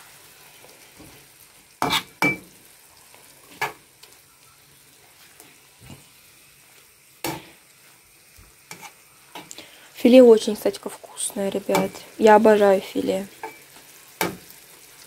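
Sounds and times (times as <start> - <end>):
meat sizzling in a pan: 0.0 - 15.0
spatula scraping and knocking pan: 8.7 - 9.5.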